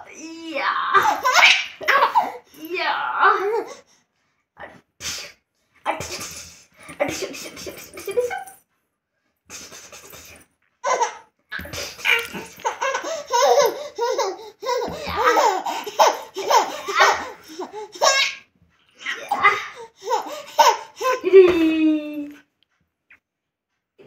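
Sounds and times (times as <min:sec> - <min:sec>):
baby giggling: 0:01.0 - 0:02.4, 0:09.9 - 0:18.4, 0:19.1 - 0:21.6.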